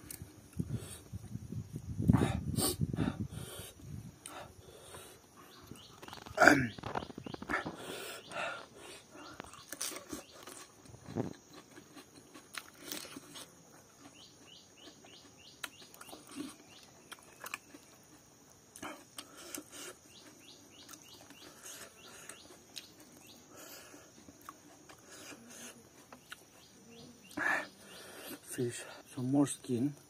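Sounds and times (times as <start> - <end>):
chewing food: 4.2 - 28.5
bird chirping: 4.6 - 11.3, 14.0 - 18.0, 19.7 - 29.9.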